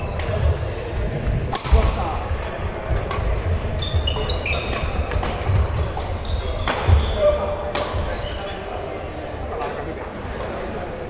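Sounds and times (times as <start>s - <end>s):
racket hitting shuttlecock: 1.5s - 2.0s, 2.9s - 7.0s
shoes squeaking on floor: 3.3s - 9.1s.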